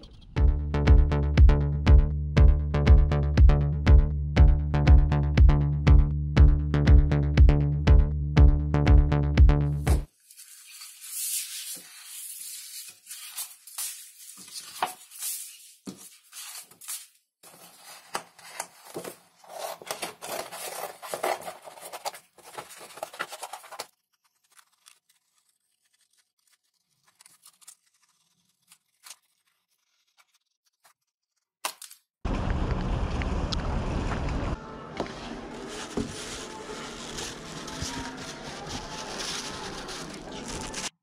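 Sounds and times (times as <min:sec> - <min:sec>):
paper rustling and sliding: 0:09.9 - 0:31.0, 0:35.0 - 0:41.0
scissors cutting paper: 0:09.9 - 0:32.0, 0:35.6 - 0:41.0.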